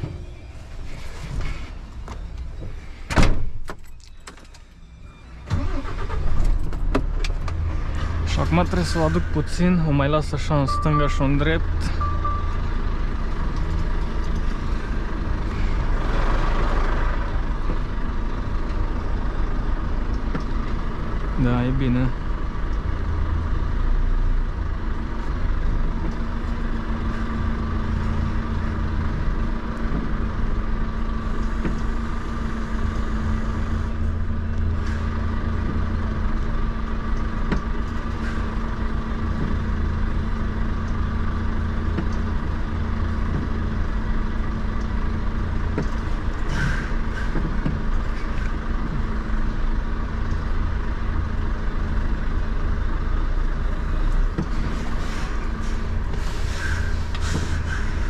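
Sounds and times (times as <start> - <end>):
diesel truck engine idling: 4.6 - 58.0
air brake hiss: 55.0 - 58.0.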